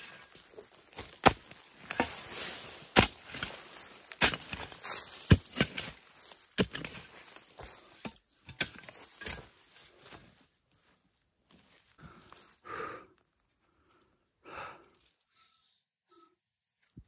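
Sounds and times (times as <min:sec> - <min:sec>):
hoe chopping into soil: 0:00.9 - 0:09.5.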